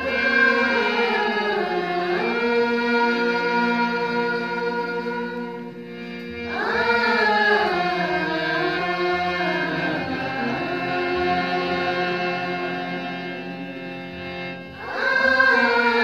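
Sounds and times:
singers holding a chord: 0.0 - 16.0
solo voice singing ornamented melody: 14.8 - 16.0.

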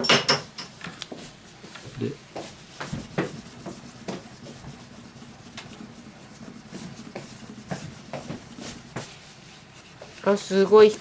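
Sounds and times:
tissue rubbing knife handle: 2.6 - 10.2.

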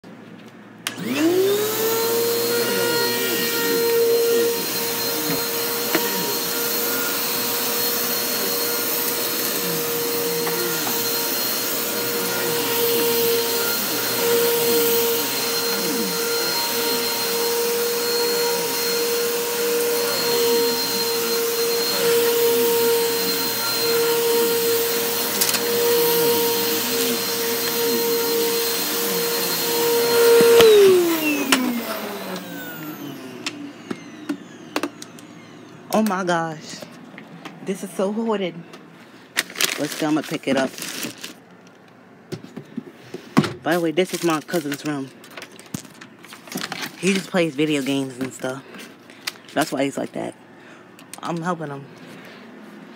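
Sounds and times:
vacuum cleaner running: 0.8 - 38.8, 46.3 - 50.3
vacuum motor spinning down: 0.9 - 36.0.

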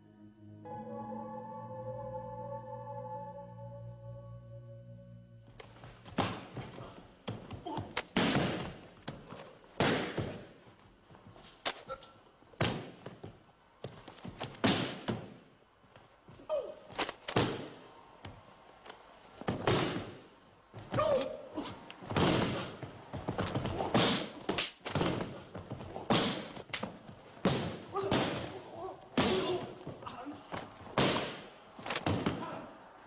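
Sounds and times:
bodies thudding on training mats: 5.9 - 11.8, 12.5 - 18.4, 19.3 - 32.6.

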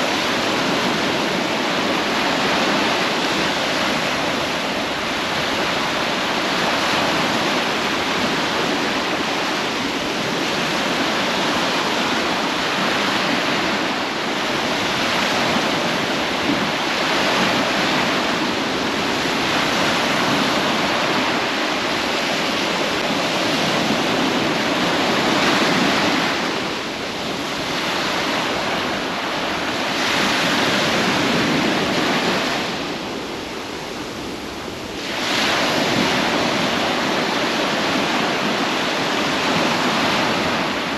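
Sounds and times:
ocean waves breaking: 0.0 - 40.9.

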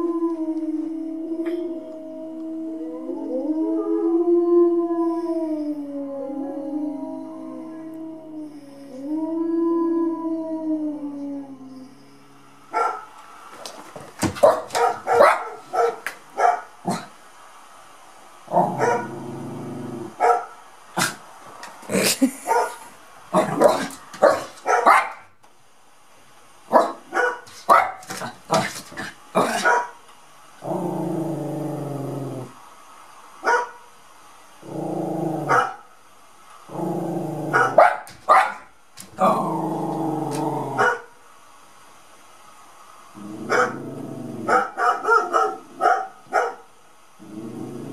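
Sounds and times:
small dog barking and yipping: 12.7 - 13.1, 14.2 - 17.1, 18.8 - 19.1, 20.2 - 21.1, 23.4 - 25.3, 26.7 - 30.0, 33.4 - 33.8, 35.5 - 35.8, 37.5 - 39.3, 40.8 - 41.1, 44.5 - 46.7
dog growling: 16.8 - 17.2, 18.5 - 20.2, 21.0 - 24.6, 27.5 - 29.8, 30.6 - 32.6, 34.6 - 35.6, 36.7 - 37.8, 39.0 - 41.0, 43.2 - 44.7, 47.2 - 47.9.

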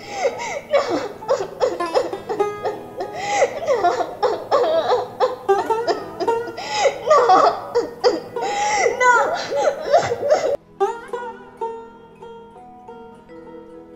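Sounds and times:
high-pitched laughter: 0.0 - 11.0
background music: 0.0 - 13.9.

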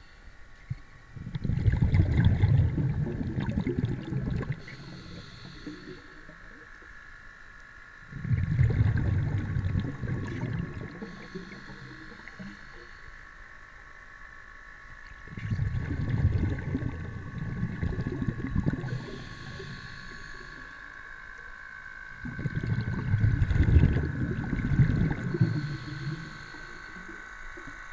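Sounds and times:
steady high whine: 0.0 - 27.9
water rushing and rumbling: 1.2 - 4.9, 8.1 - 12.5, 15.2 - 19.4, 22.2 - 26.2.

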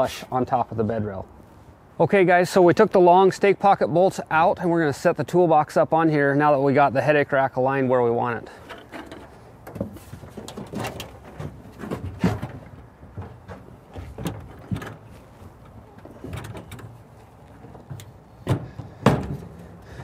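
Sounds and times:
metal toolbox knocking and scraping: 8.6 - 15.1, 15.7 - 17.0.

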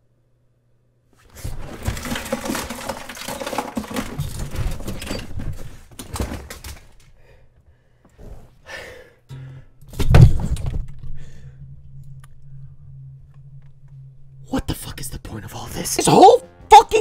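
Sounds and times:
objects clattering on shelf: 1.3 - 7.1.

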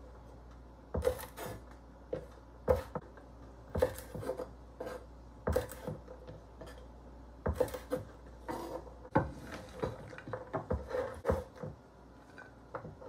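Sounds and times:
knife cutting on wooden board: 1.0 - 3.0, 3.7 - 6.8, 7.5 - 11.7.

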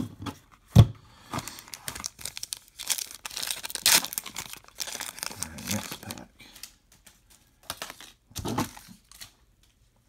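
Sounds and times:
foil wrapper crinkling: 1.4 - 6.3
wrapper ripping: 1.5 - 6.3.

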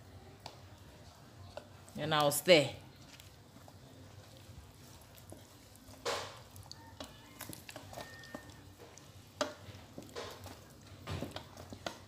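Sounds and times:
wooden spatula scraping a pot: 3.4 - 12.0.

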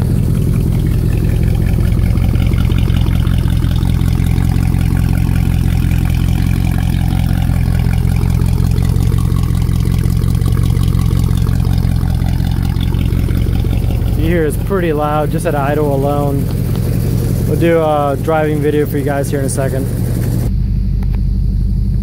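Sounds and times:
car engine idling loudly: 0.0 - 22.0.

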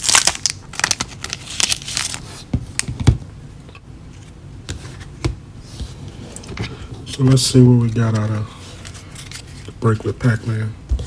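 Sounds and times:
plastic sleeves crinkling: 0.0 - 2.9.

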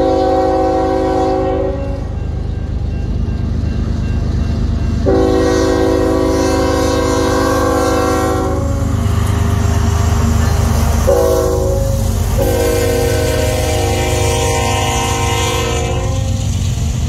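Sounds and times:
train air horn blasts: 0.0 - 2.2, 5.0 - 9.0, 11.0 - 16.5
locomotive engines and wheels rumbling: 0.0 - 17.0.

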